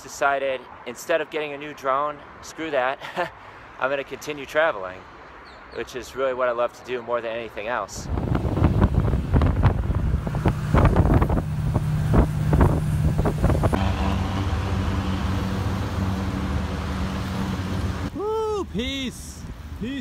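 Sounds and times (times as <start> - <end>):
road traffic hum: 0.0 - 20.0
bus engine rumble: 8.1 - 19.8.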